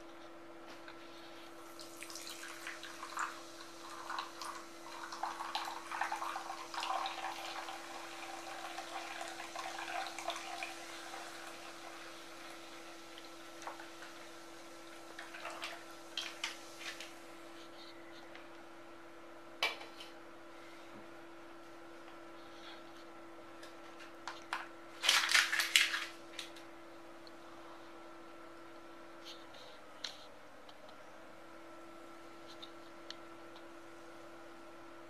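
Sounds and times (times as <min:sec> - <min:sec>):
faint steady hum: 0:00.0 - 0:35.0
soda pouring and fizzing: 0:01.6 - 0:17.2.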